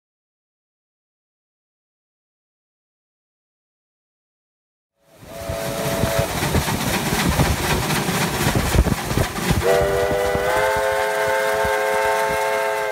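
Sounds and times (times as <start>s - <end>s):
long chord steam whistle: 5.0s - 6.4s, 9.6s - 12.9s
steam whistle blast: 5.1s - 6.4s, 9.6s - 12.9s
steam locomotive rumbling and knocking: 5.2s - 12.9s.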